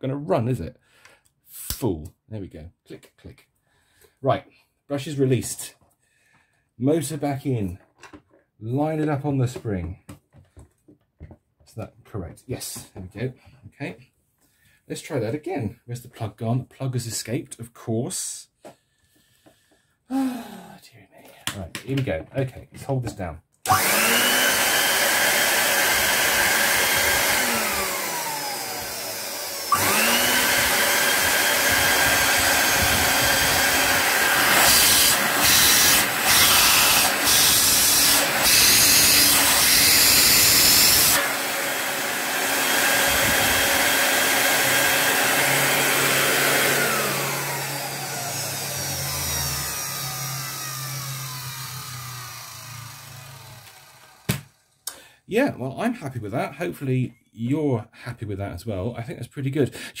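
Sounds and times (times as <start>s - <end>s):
vacuum cleaner motor rushing and whining: 23.7s - 54.5s.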